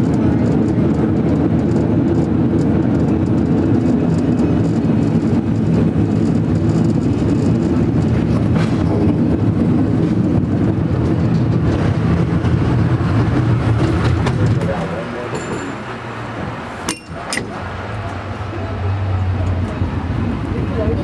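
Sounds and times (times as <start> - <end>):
cable car rumbling on rails: 0.0 - 21.0
sharp metal clank: 16.9 - 17.5.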